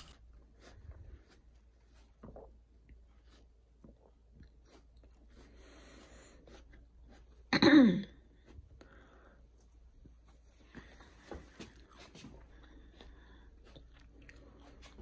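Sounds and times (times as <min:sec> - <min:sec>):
person coughing or sneezing: 0:07.5 - 0:08.2.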